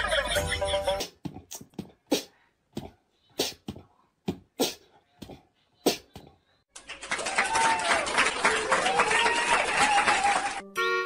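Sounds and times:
music: 10.5 - 11.0.

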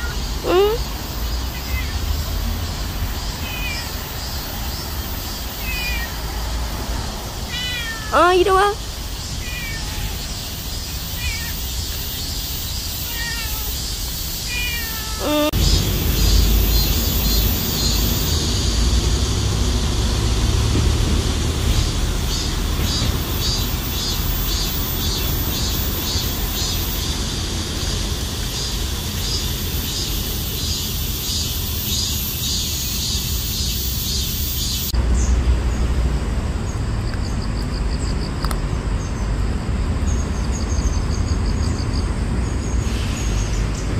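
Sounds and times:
cat meowing: 0.0 - 0.9, 1.5 - 2.2, 3.4 - 4.1, 5.6 - 6.3, 7.4 - 10.4, 11.1 - 11.7, 12.9 - 15.6.

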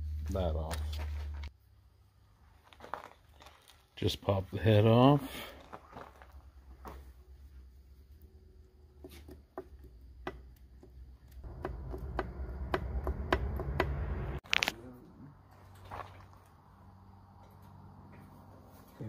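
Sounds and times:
low rumble: 11.5 - 14.4.

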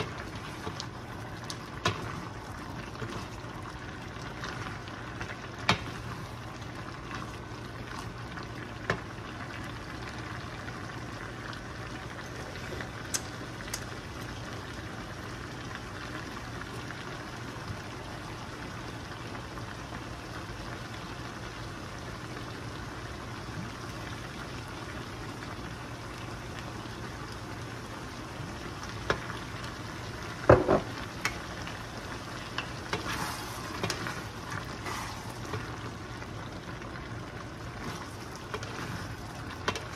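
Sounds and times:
meat sizzling in a skillet: 12.4 - 39.9
wooden spoon knocking on pan: 30.5 - 31.0.

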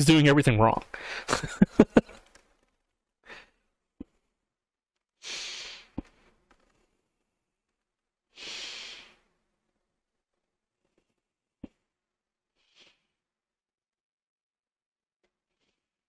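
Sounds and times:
person speaking: 0.0 - 0.9
person breathing out: 1.0 - 1.3, 5.2 - 6.0, 8.4 - 9.3.

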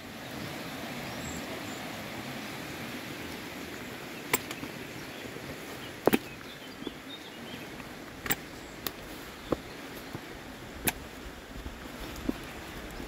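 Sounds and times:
footsteps on rocky trail: 4.2 - 13.0.

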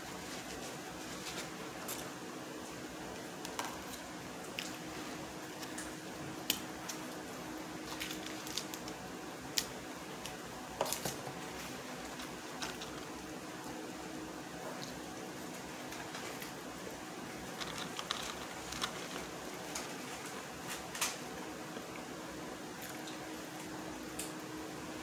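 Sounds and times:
steady low hum: 0.0 - 25.0
paper packaging crinkling: 0.1 - 2.1, 6.8 - 9.8, 10.8 - 13.3, 17.3 - 21.3.

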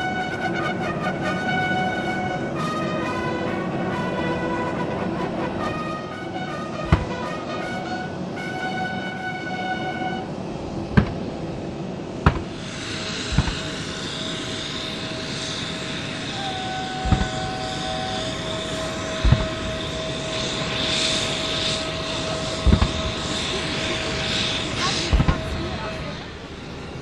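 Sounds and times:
aircraft engine hum: 0.0 - 27.0
field guns firing booming shots: 6.8 - 7.7, 10.8 - 11.6, 12.2 - 13.9, 17.0 - 17.8, 19.1 - 19.9, 22.6 - 23.3, 25.0 - 25.8.

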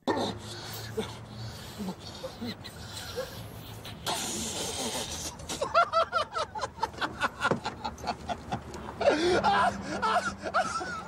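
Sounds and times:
man sniffing hard: 0.2 - 5.7
man laughing: 5.4 - 11.0.

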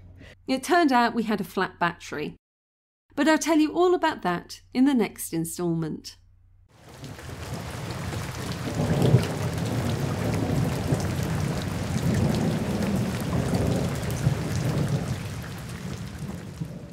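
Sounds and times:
rain falling on water: 6.8 - 16.9.

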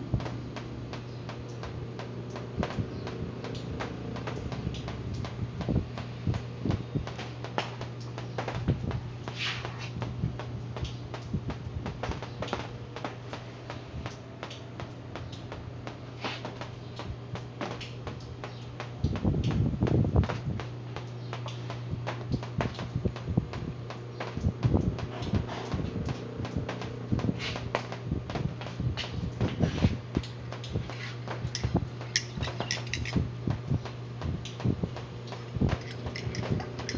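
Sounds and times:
electric fan motor humming: 0.0 - 36.9
light clicks and knocks: 35.3 - 36.9.

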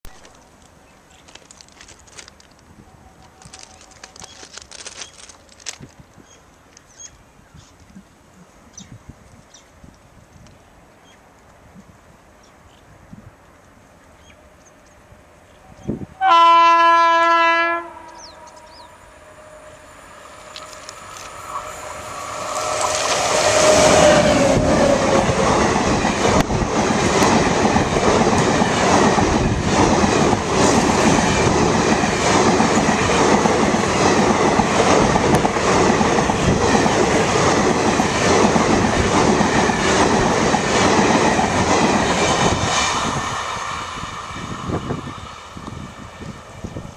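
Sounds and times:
locomotive horn: 16.2 - 25.0
train wheels clattering on track: 22.2 - 46.7.

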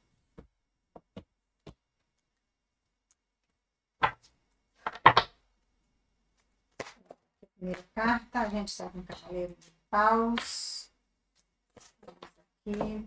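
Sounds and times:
cards slapping on a table: 4.0 - 5.4.

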